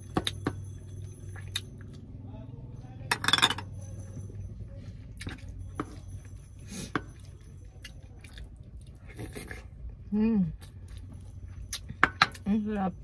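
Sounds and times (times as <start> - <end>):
steady low hum: 0.0 - 13.0
metal spoon clinking on dish: 3.1 - 4.2.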